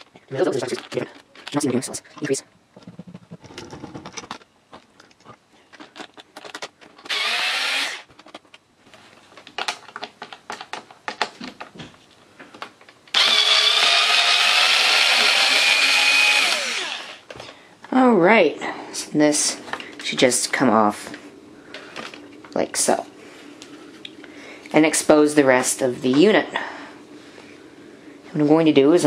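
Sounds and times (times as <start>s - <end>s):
cordless drill whining: 7.1s - 8.1s, 13.1s - 17.3s.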